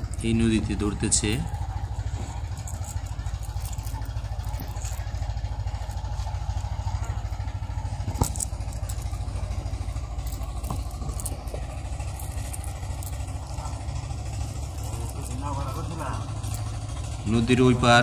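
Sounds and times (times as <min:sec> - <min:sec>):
engine throbbing: 0:00.0 - 0:18.0.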